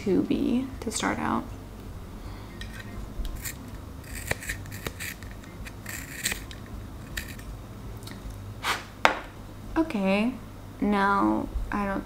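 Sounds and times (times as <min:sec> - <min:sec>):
pencil sharpener scraping: 0:02.6 - 0:07.5.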